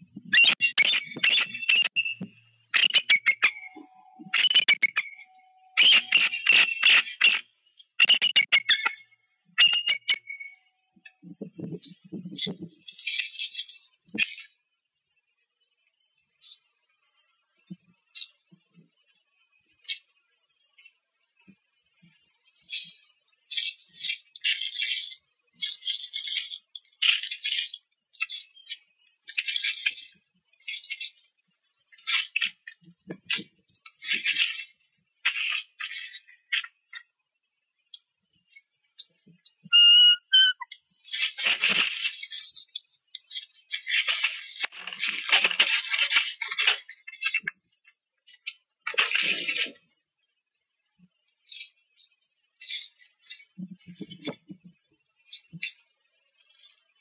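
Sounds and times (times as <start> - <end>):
eagle chittering calls: 0.4 - 7.4, 8.0 - 10.6, 39.7 - 40.7
sticks and grass rustling and crackling: 40.9 - 47.6.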